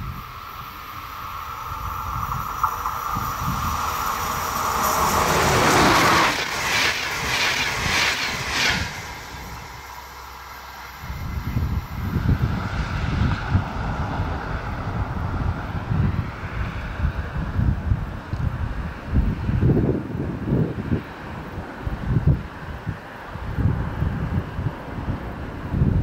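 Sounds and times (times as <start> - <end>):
wind buffeting microphone: 0.0 - 10.0, 11.0 - 26.0
train passing with falling tone: 0.0 - 26.0
train wheels clattering: 2.0 - 10.0.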